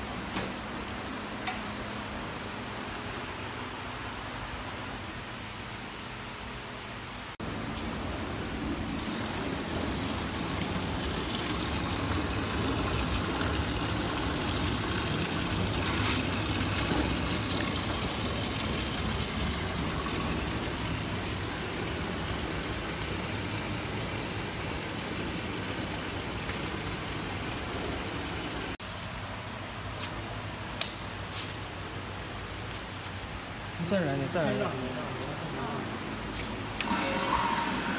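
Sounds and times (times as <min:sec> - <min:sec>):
oil rushing through pipes: 0:08.1 - 0:28.8, 0:36.8 - 0:37.9
sharp click: 0:30.8 - 0:31.1.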